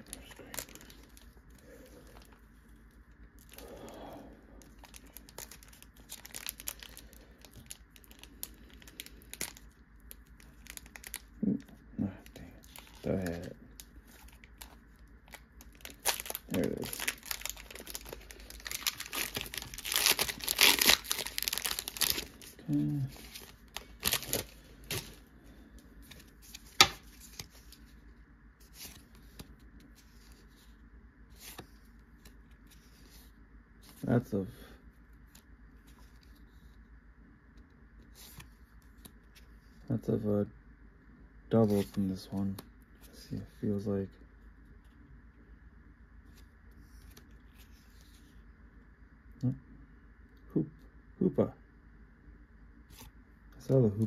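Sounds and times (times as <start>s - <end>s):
foil wrapper crinkling and tearing: 0.0s - 2.4s, 4.6s - 25.2s.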